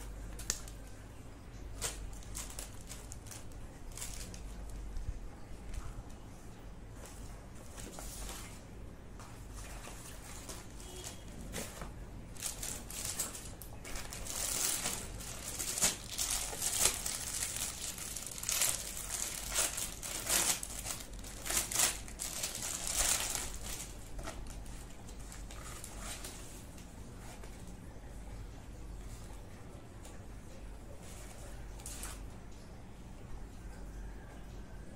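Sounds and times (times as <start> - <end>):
plastic bag crinkling: 0.1 - 5.0, 9.8 - 26.7.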